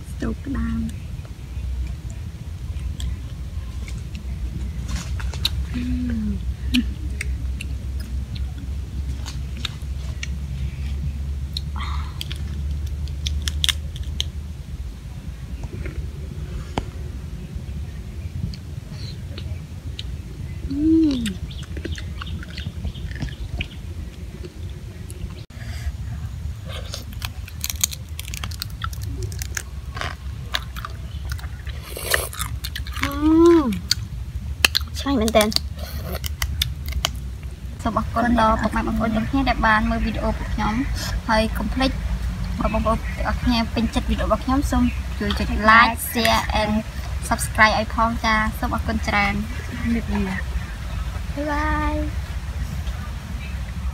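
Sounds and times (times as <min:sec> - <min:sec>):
steady low rumble: 0:00.0 - 0:53.9
crab shells cracking: 0:12.2 - 0:14.3, 0:27.0 - 0:33.2, 0:33.8 - 0:37.3
chewing: 0:21.1 - 0:25.2, 0:26.6 - 0:37.2.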